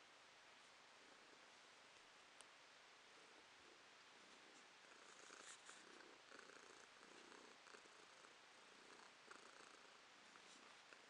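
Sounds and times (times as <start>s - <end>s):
cat purring: 3.0s - 11.0s.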